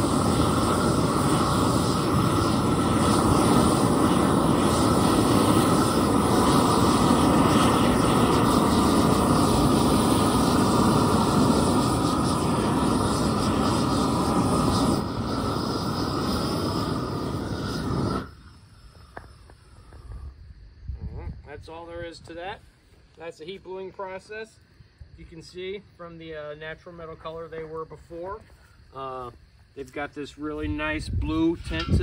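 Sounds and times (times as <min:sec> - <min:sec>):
propane torch rushing: 0:00.0 - 0:22.4, 0:30.5 - 0:32.0.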